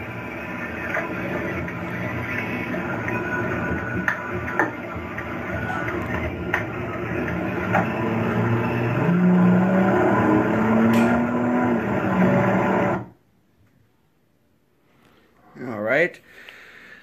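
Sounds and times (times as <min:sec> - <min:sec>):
car engine revving: 0:00.0 - 0:13.1.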